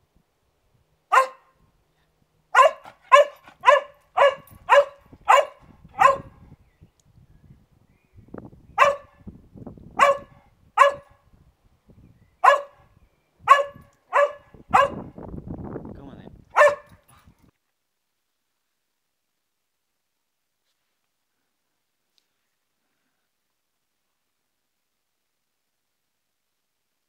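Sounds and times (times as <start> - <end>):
dog barking: 1.1 - 1.6, 2.5 - 6.4, 8.8 - 9.2, 10.0 - 11.2, 12.4 - 12.9, 13.5 - 15.2, 16.5 - 17.0.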